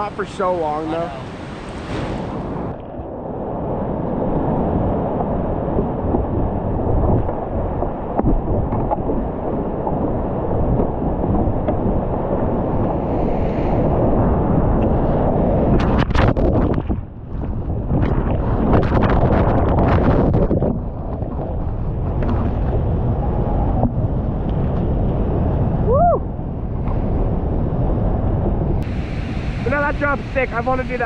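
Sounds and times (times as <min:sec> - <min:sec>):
whitewater rushing: 0:00.0 - 0:02.7, 0:28.8 - 0:31.0
wind buffeting microphone: 0:00.0 - 0:31.0.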